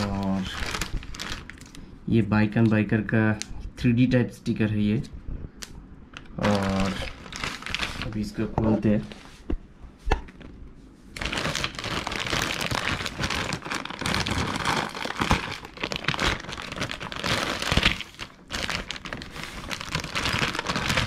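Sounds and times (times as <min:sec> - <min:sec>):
plastic bag crinkling: 0:00.0 - 0:01.9, 0:06.4 - 0:09.1, 0:11.1 - 0:21.0.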